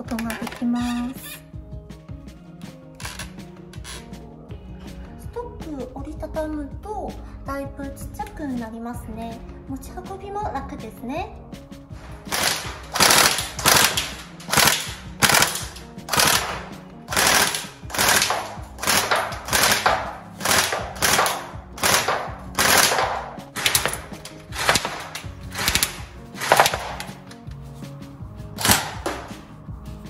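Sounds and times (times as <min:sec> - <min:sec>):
background music: 0:00.0 - 0:30.0
airsoft gun firing shots: 0:12.0 - 0:27.2, 0:28.6 - 0:29.4.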